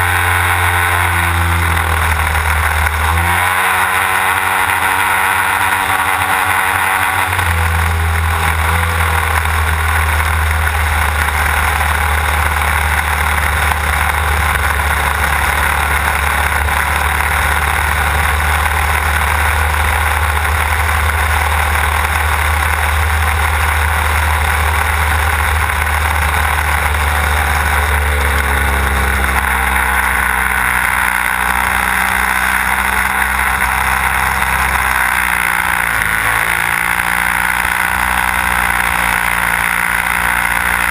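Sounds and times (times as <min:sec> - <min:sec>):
model plane engine running hard: 0:00.0 - 0:40.9.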